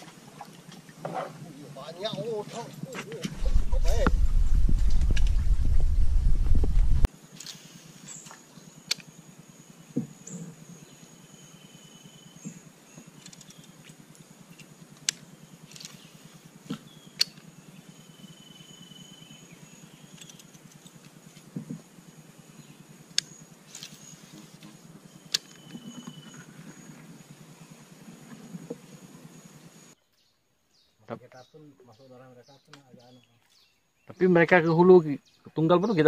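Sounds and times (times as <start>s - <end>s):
high-pitched insect drone: 7.1s - 30.0s.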